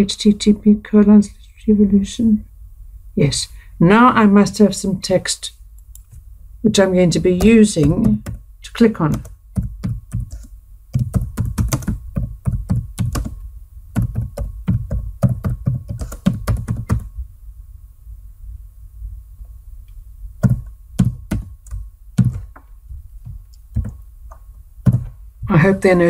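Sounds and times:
computer keyboard typing: 7.2s - 8.4s, 9.1s - 13.4s, 14.0s - 17.1s, 20.4s - 22.6s, 23.2s - 24.0s, 24.8s - 25.2s.

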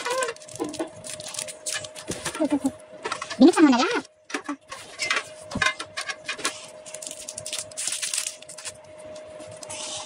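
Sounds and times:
foil packs crinkling: 0.0s - 2.6s, 6.5s - 8.8s
cards clicking and rustling: 6.9s - 8.7s.

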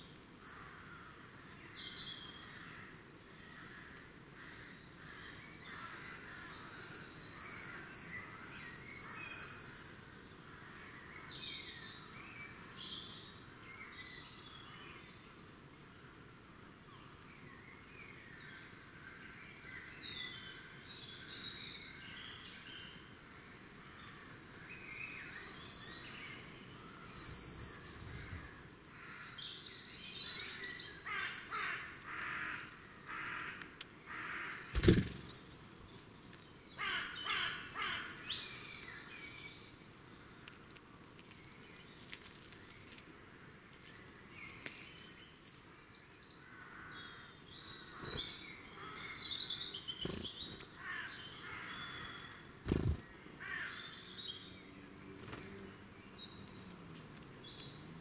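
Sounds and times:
small birds singing: 0.0s - 58.0s
crows cawing: 31.0s - 34.7s, 36.8s - 38.1s, 50.8s - 52.4s, 53.4s - 53.9s.

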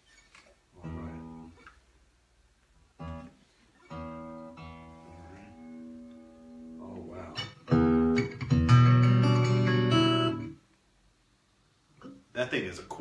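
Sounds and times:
acoustic guitar chords strummed: 3.9s - 10.6s.

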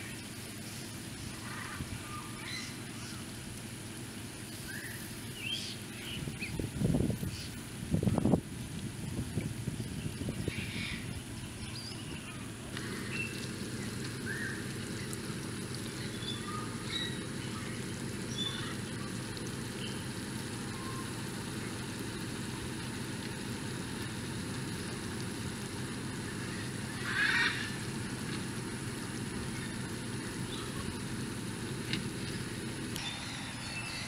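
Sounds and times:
steady low hiss: 0.0s - 34.0s
duck call: 27.0s - 27.8s
bird chirps: 33.0s - 34.0s.

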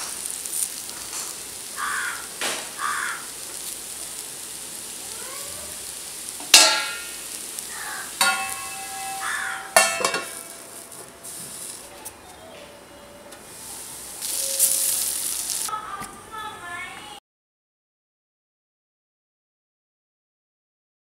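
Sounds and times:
slices sizzling in oil: 0.0s - 12.5s, 13.4s - 15.8s
sharp ringing clinks: 8.2s - 11.7s.

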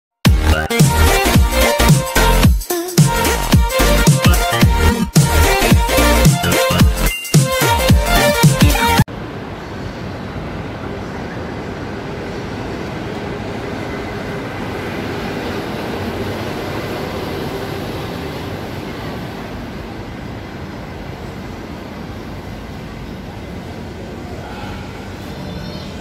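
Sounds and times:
city traffic rumble: 8.0s - 26.0s.

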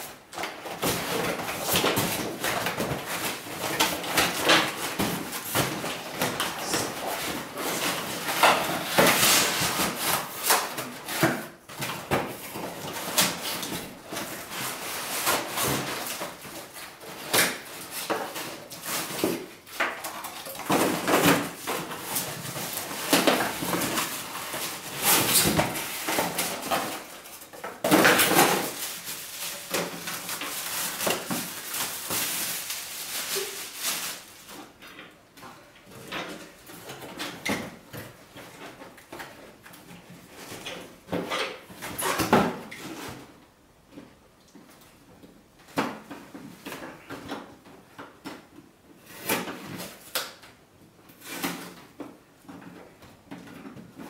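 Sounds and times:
cardboard packaging rustling: 0.0s - 34.8s
plastic wrapping crinkling: 0.0s - 34.9s.

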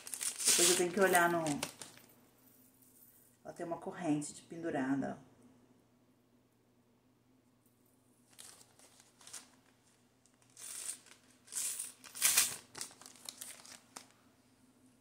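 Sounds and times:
packaging crinkling: 0.0s - 2.1s, 8.3s - 14.2s.

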